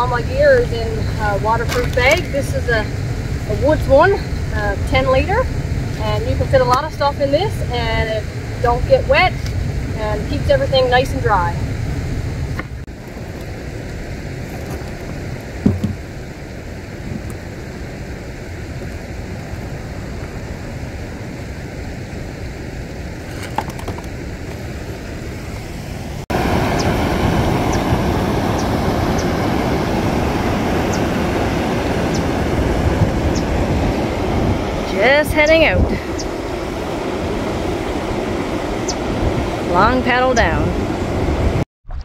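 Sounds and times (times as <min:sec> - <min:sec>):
thump: 0:15.6 - 0:16.0.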